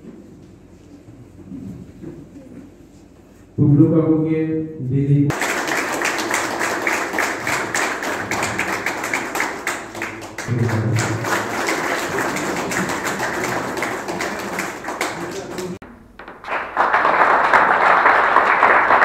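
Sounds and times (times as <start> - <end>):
audience clapping in rhythm: 5.3 - 19.0.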